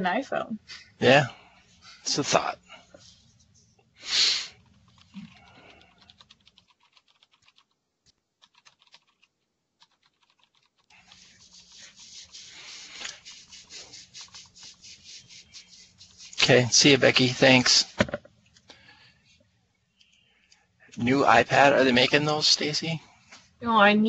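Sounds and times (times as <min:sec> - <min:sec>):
hiss: 0:04.0 - 0:04.6, 0:11.6 - 0:15.7.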